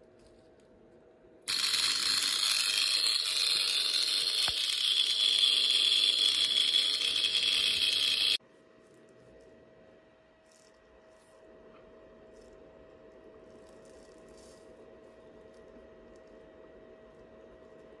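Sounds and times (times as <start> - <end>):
relay buzzing: 1.5 - 8.4.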